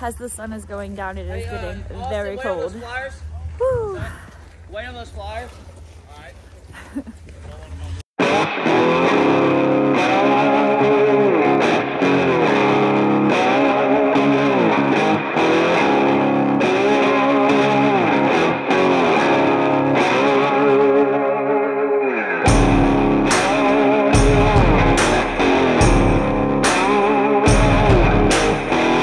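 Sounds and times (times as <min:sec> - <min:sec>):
distorted electric guitar music: 0:08.2 - 0:29.0.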